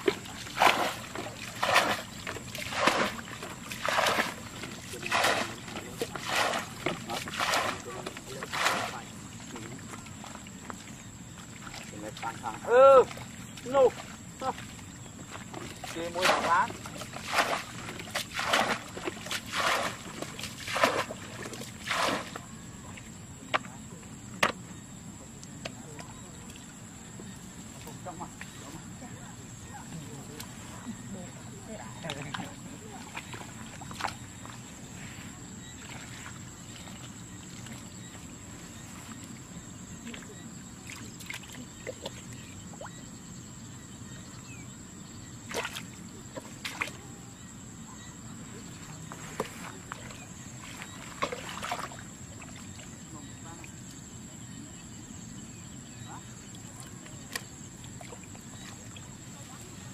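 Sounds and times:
water splashing from a bucket: 0.0s - 24.6s, 32.0s - 34.7s, 39.0s - 43.0s, 45.4s - 47.1s, 49.2s - 54.0s, 56.4s - 59.9s.

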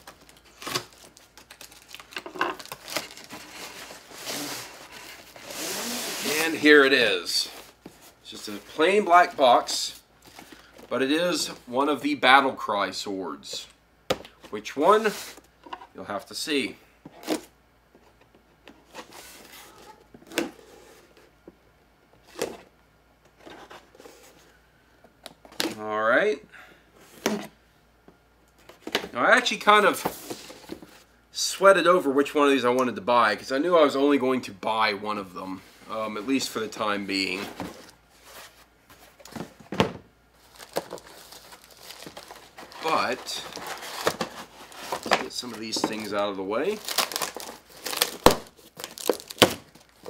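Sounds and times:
cardboard carton crinkling: 0.0s - 6.7s, 40.4s - 50.0s.

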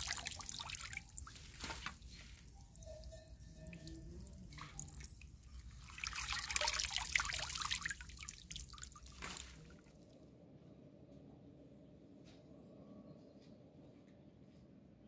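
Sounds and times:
water splashing in a metal basin: 0.0s - 9.8s.

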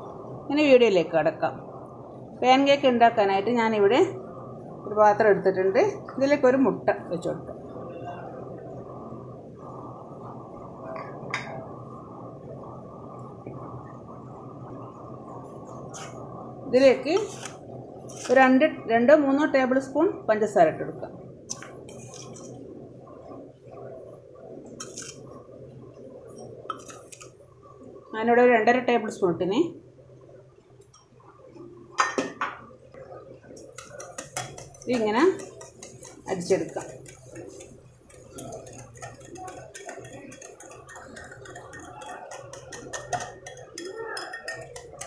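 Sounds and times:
low room hum: 0.0s - 45.0s
sugar pouring into glass bowl: 33.6s - 45.0s.

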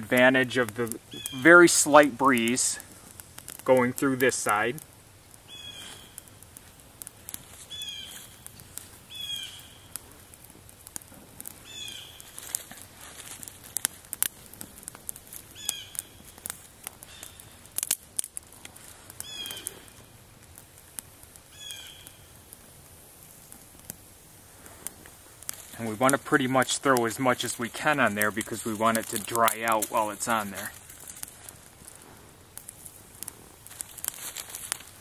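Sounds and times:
twig fire crackling: 0.0s - 35.0s
bird calling: 1.1s - 1.6s, 5.5s - 6.2s, 7.7s - 8.3s, 9.1s - 9.9s, 11.6s - 12.3s, 15.6s - 16.2s, 19.2s - 19.9s, 21.5s - 22.2s.

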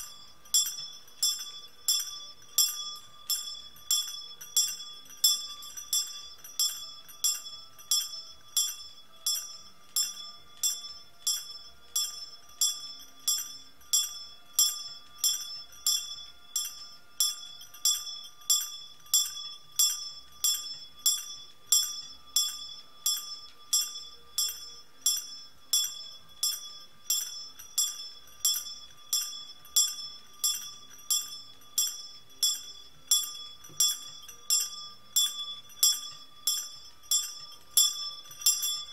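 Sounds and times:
small bell ringing: 0.0s - 38.9s.

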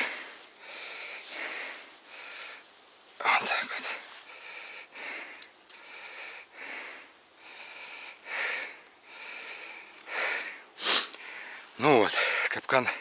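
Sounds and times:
man breathing heavily through nose: 0.0s - 13.0s
light metal clicks of trap springs: 4.9s - 6.2s.

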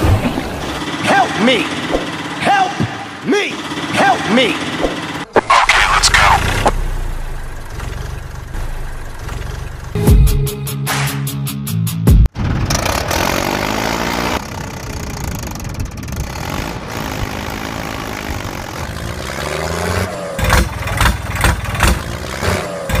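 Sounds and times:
engine revving: 0.0s - 10.2s, 12.3s - 23.0s
sharp knocks: 1.9s - 3.2s.

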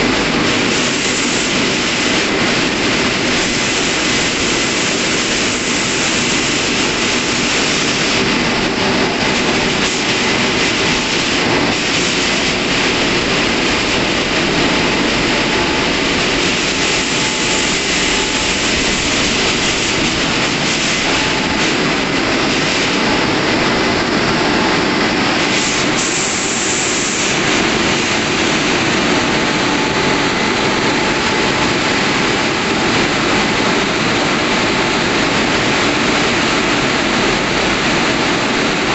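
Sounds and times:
car wash dryer blowing air: 0.0s - 38.9s.

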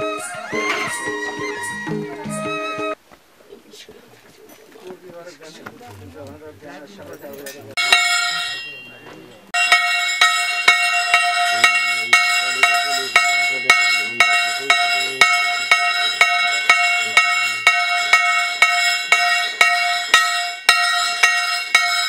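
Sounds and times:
brass temple bells ringing: 7.8s - 22.0s.

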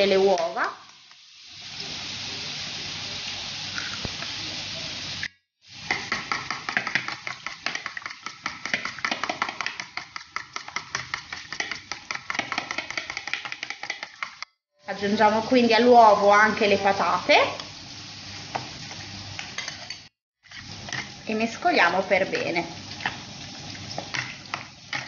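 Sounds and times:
bacon sizzling in a pan: 0.0s - 25.0s
fork beating eggs in a bowl: 5.9s - 14.5s, 19.6s - 21.2s, 23.8s - 25.0s.

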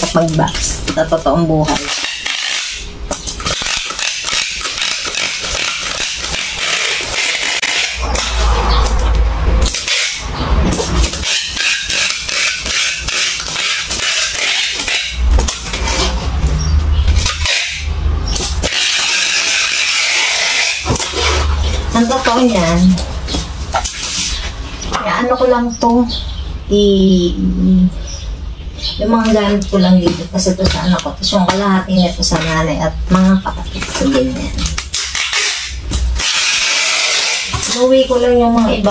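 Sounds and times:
hands pressing tape on cardboard: 1.7s - 8.3s
packing tape unrolling: 1.7s - 8.4s, 9.6s - 16.2s, 17.2s - 24.6s, 33.8s - 37.8s.

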